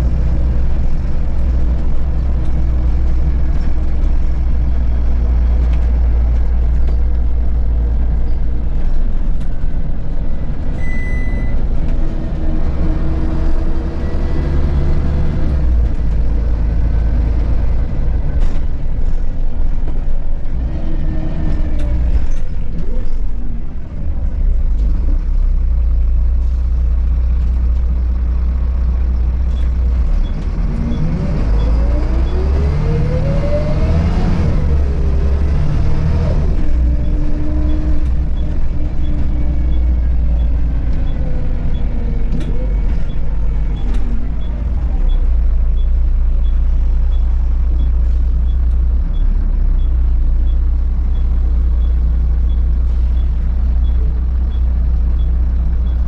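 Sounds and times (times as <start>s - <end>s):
bus diesel engine drone: 0.0s - 56.0s
road noise: 0.0s - 56.0s
short beep: 10.8s - 11.6s.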